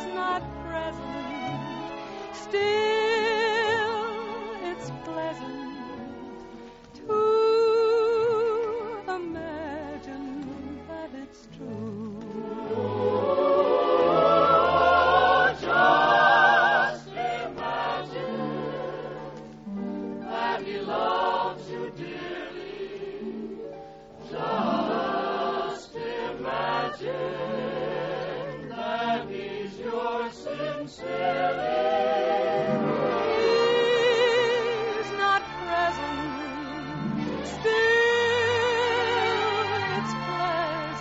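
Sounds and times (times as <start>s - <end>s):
choir singing with orchestra: 11.6s - 41.0s.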